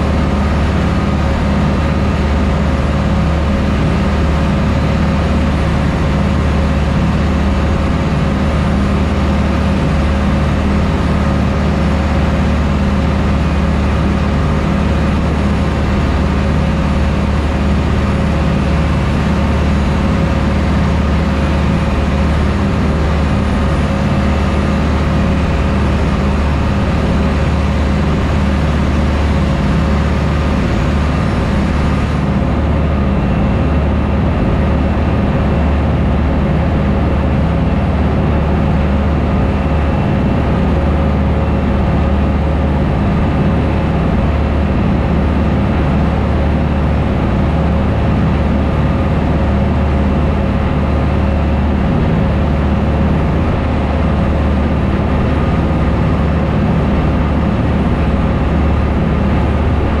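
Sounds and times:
boat engines droning: 0:00.0 - 1:00.0.

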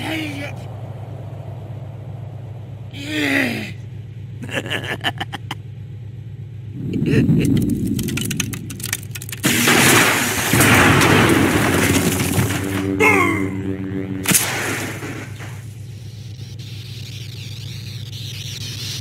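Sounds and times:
low rumble: 0:00.5 - 0:03.0, 0:06.4 - 0:16.0
falling tone: 0:06.7 - 0:15.8
quick crackles: 0:07.2 - 0:12.9
loud sustained blast: 0:09.5 - 0:15.8.

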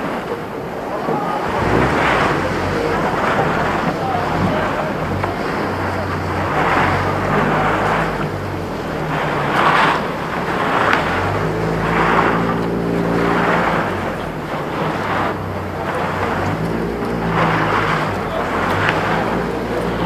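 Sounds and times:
kegs scraping over brick paving: 0:00.0 - 0:20.0.

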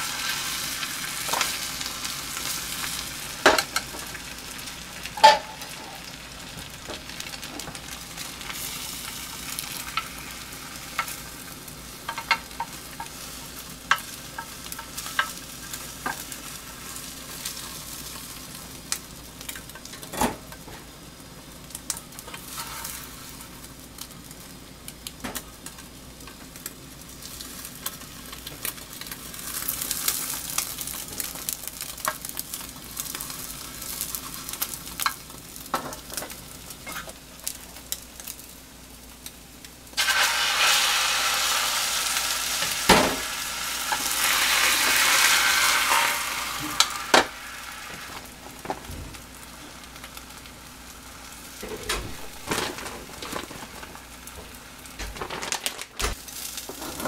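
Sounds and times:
egg sizzling in a pan: 0:00.0 - 0:55.0, 0:55.8 - 0:57.0
chopsticks clicking and scraping pan: 0:12.1 - 0:13.2.

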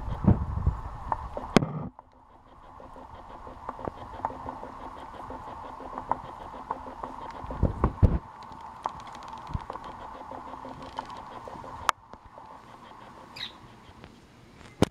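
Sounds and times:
kitten licking ice: 0:01.0 - 0:14.2
kitten growling: 0:02.2 - 0:07.9, 0:09.4 - 0:14.0.

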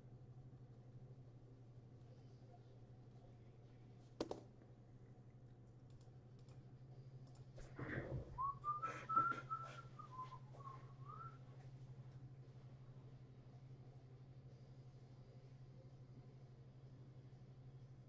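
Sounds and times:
faint low hum: 0:00.0 - 0:18.0
person whistling a tune: 0:08.4 - 0:11.4.

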